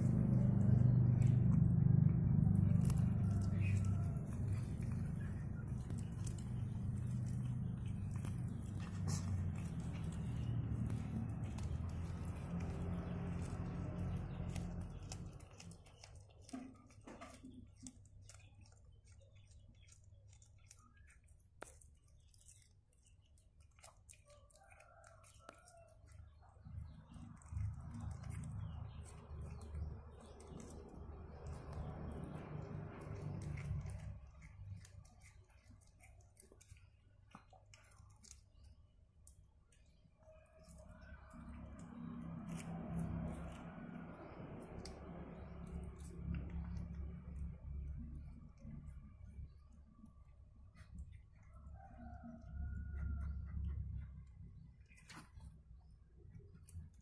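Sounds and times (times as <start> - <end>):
wet chewing clicks: 0.0 - 57.0.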